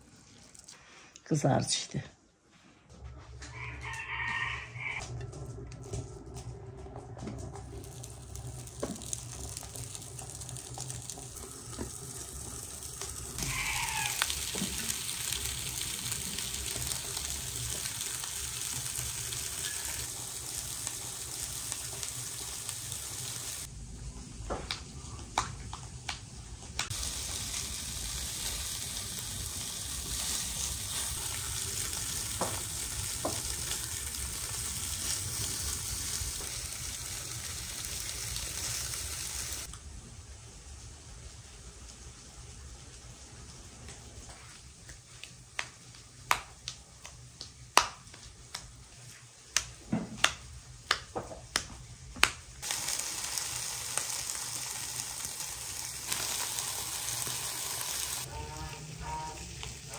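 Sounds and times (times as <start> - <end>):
meat sizzling in a pan: 7.6 - 23.7, 26.9 - 39.7, 52.6 - 59.9.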